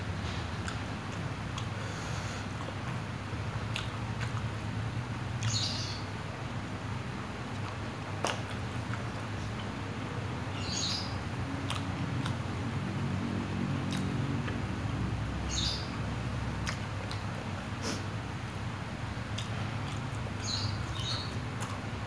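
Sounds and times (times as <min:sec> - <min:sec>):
chewing with mouth smacks: 0:00.6 - 0:01.8, 0:02.5 - 0:04.6, 0:07.5 - 0:09.8, 0:11.6 - 0:12.5, 0:13.8 - 0:14.7, 0:16.6 - 0:17.4, 0:19.2 - 0:21.9.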